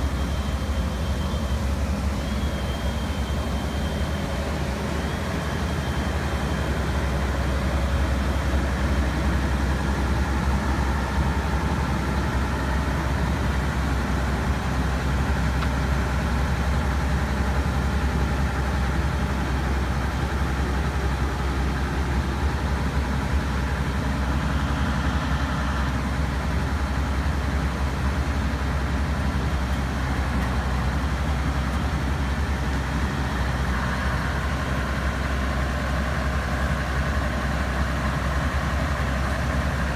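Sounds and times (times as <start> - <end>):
diesel engines rumbling: 0.0 - 39.9.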